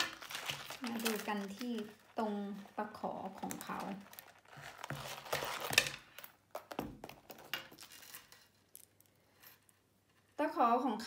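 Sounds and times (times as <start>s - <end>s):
canvas rustling: 0.0s - 3.0s
metal hooks and chain clinking: 7.2s - 9.8s.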